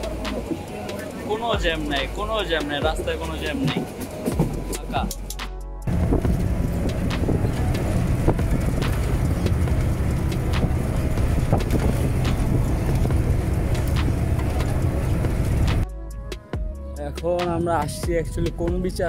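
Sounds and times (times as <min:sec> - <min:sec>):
bus engine and road rumble: 0:00.0 - 0:15.9
wind noise on microphone: 0:02.8 - 0:15.9.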